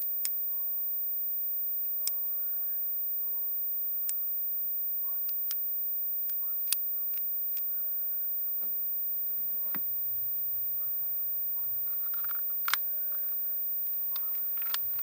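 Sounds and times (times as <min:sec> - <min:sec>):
sharp plastic clicks: 0:11.8 - 0:13.0, 0:13.9 - 0:15.0.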